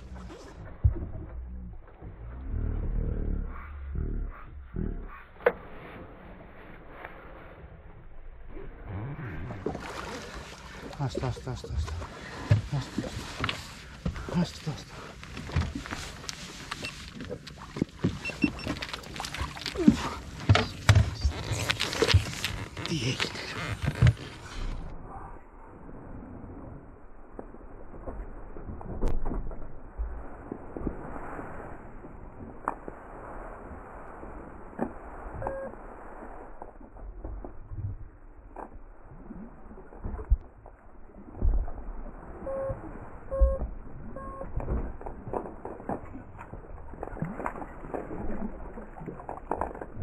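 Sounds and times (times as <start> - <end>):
low rumble: 0.0 - 49.4
short high beeps: 18.2 - 18.7, 35.4 - 35.8, 42.4 - 44.5.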